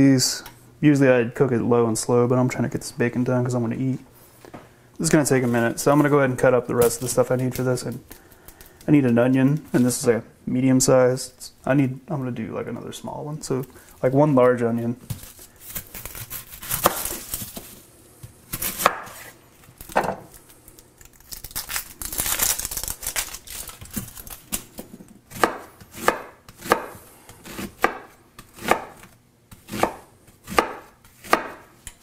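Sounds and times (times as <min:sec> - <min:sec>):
onion skin rustling: 0:05.0 - 0:10.1, 0:13.0 - 0:31.4
knife chopping on cutting board: 0:18.6 - 0:19.3, 0:25.3 - 0:31.7.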